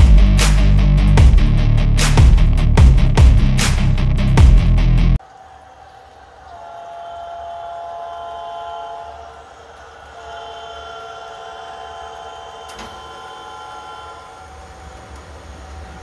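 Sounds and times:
multi-chime air horn blasts: 6.5s - 9.5s, 10.1s - 14.6s.

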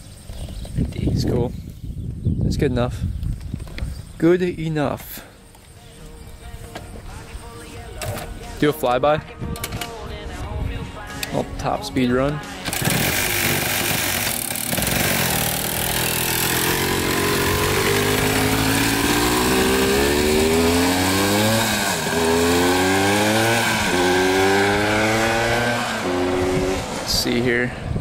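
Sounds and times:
two-stroke engine accelerating: 12.6s - 27.6s.

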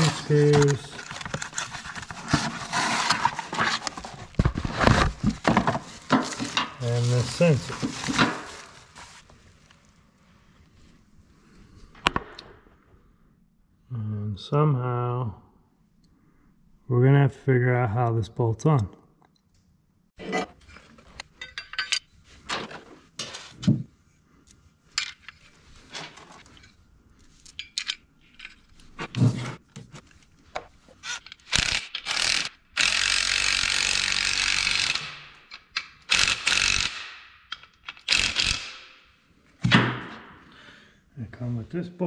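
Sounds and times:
small parts clicking and clinking: 26.4s - 28.9s, 31.1s - 38.7s.

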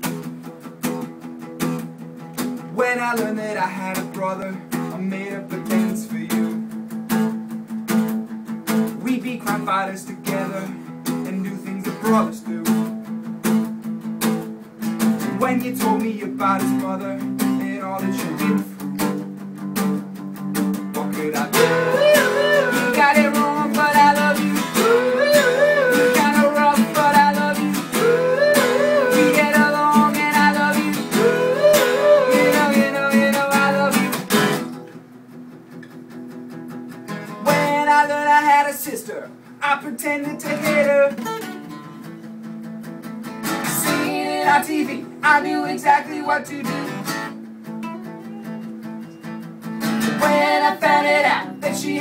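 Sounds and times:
acoustic guitars strummed: 0.0s - 52.0s
group singing wordless melody: 21.4s - 34.1s, 43.8s - 47.1s, 50.1s - 52.0s.

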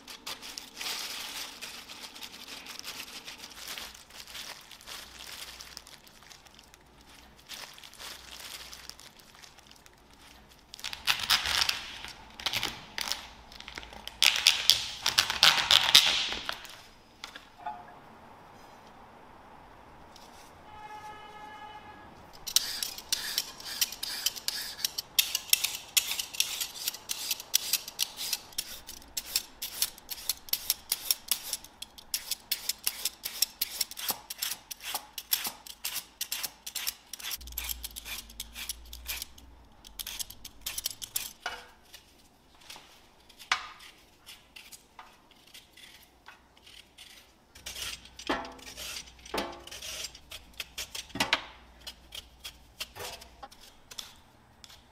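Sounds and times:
peeler blades scraping vegetables: 22.4s - 42.1s, 43.3s - 54.9s.

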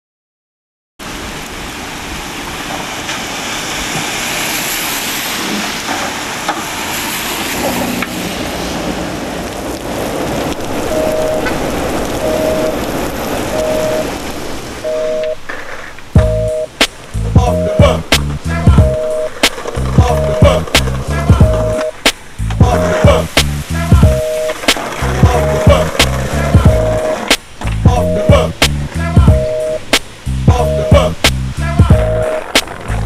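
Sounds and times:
rain falling on street: 1.0s - 33.0s
two-tone phone beep: 10.9s - 11.5s, 12.2s - 12.8s, 13.5s - 14.1s, 14.8s - 15.4s, 16.2s - 16.7s, 18.7s - 19.4s, 21.4s - 22.0s, 24.0s - 24.6s, 26.6s - 27.2s, 27.9s - 28.5s, 29.3s - 29.8s, 31.9s - 32.4s.

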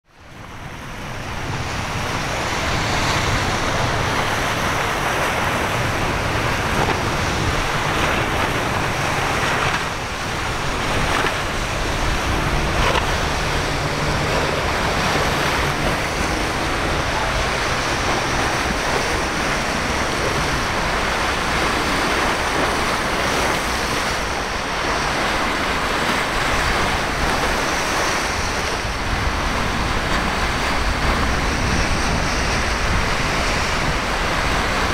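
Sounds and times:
breaking waves: 0.1s - 34.9s
outboard boat engines: 0.1s - 34.9s
wind buffeting microphone: 0.2s - 34.9s.

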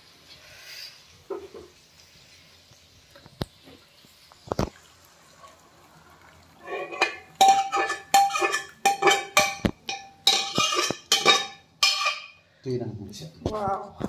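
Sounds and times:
steel ladle scraping metal pot: 6.6s - 12.4s.

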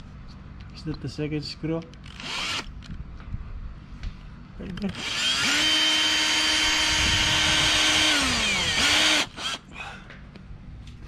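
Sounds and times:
cordless drill whining: 2.0s - 2.7s, 4.9s - 9.7s.

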